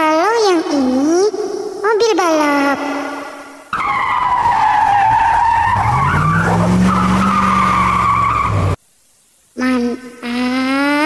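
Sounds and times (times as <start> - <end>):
tyre screech: 3.8 - 8.8.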